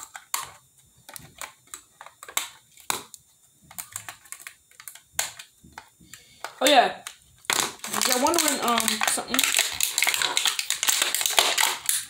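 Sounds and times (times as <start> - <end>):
scissors snipping plastic: 7.0 - 12.0.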